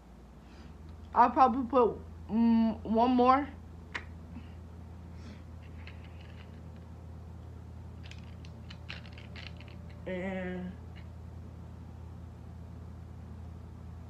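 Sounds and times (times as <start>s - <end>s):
low hum: 0.0s - 14.0s
small objects clicking and tapping: 5.6s - 6.9s, 8.0s - 10.1s.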